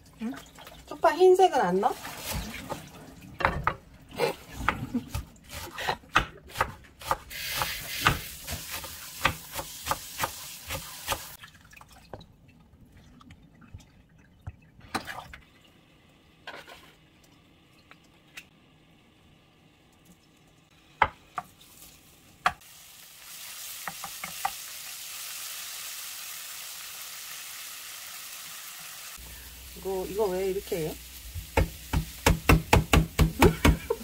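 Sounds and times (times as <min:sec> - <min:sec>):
knife chopping on wooden board: 0:05.5 - 0:11.2, 0:31.4 - 0:33.9.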